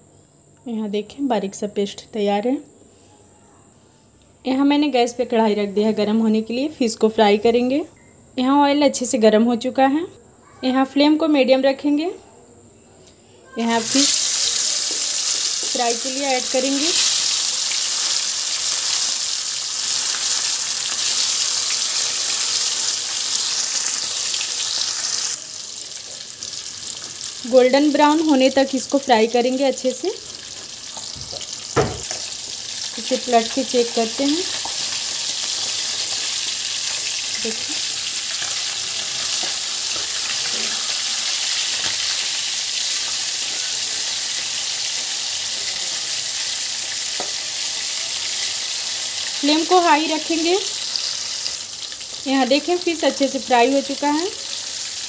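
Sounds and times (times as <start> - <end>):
fish sizzling in hot oil: 13.6 - 55.0.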